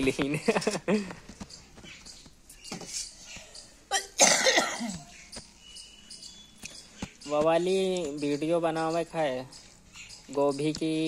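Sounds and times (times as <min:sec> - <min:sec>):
harsh cough: 0:03.9 - 0:05.1.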